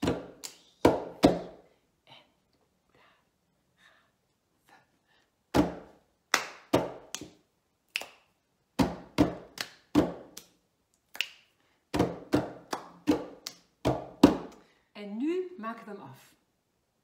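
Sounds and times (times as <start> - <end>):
hands clapping: 0.1 - 1.4, 6.3 - 8.2, 8.8 - 11.5, 12.3 - 14.6.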